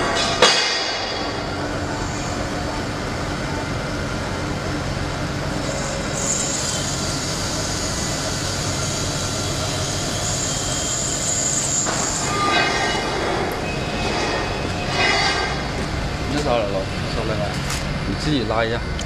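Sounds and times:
high machine whine: 0:00.0 - 0:19.0
foam cutting machine running: 0:00.1 - 0:18.8.

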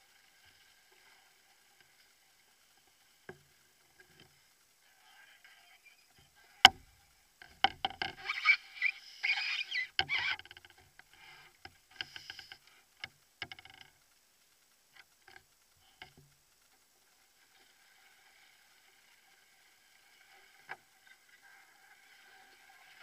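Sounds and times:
paddle knocks: 0:06.7 - 0:08.2.

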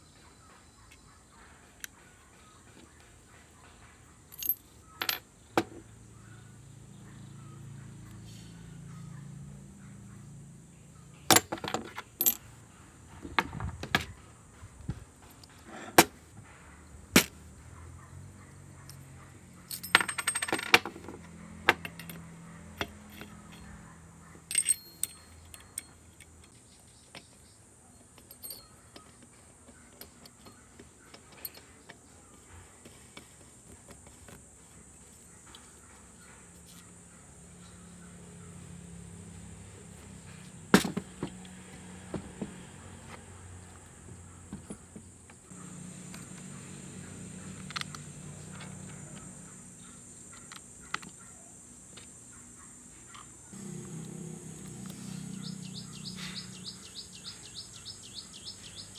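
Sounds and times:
metal parts clinking on workbench: 0:04.3 - 0:05.2, 0:11.3 - 0:12.4, 0:19.7 - 0:21.1, 0:21.7 - 0:22.2, 0:22.8 - 0:23.7, 0:24.5 - 0:27.4, 0:28.0 - 0:29.2
metal parts rattling: 0:04.3 - 0:05.2, 0:11.3 - 0:12.5, 0:19.7 - 0:22.2, 0:22.8 - 0:23.7, 0:24.5 - 0:27.4, 0:28.0 - 0:31.8.

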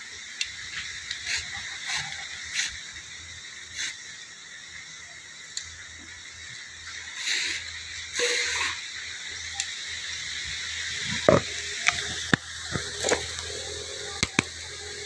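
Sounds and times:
animal hissing: 0:01.2 - 0:03.0, 0:03.7 - 0:04.1, 0:07.2 - 0:09.0.

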